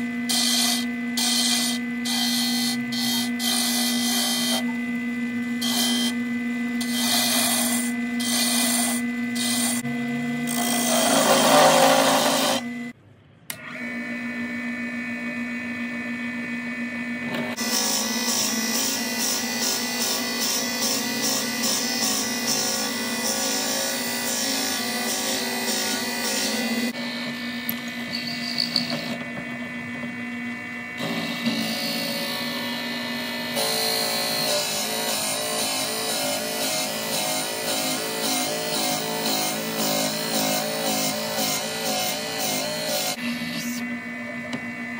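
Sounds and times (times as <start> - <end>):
lathe motor hum: 0.0 - 12.9, 13.6 - 44.9
turning tool cutting wood: 0.0 - 12.9, 17.2 - 30.2, 31.0 - 44.6
drill bit boring into wood: 0.3 - 12.7, 27.6 - 29.2.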